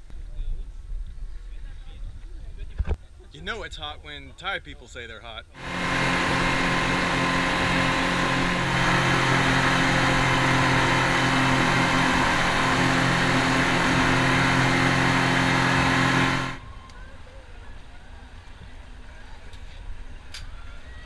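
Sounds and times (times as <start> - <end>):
water rushing along hull: 5.6 - 16.6
speedboat engines droning: 5.6 - 20.2.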